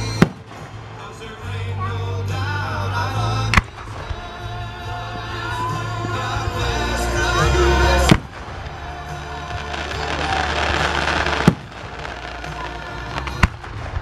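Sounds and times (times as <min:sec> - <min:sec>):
music playing: 0:00.0 - 0:14.0
firework shells bursting: 0:08.0 - 0:14.0.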